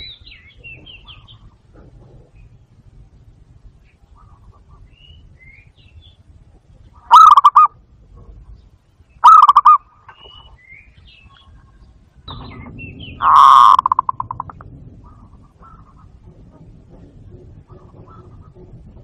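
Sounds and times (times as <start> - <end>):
high bird chirps: 7.0 - 7.7, 9.1 - 14.6
dove cooing: 7.1 - 7.7, 9.2 - 9.8, 13.1 - 19.0.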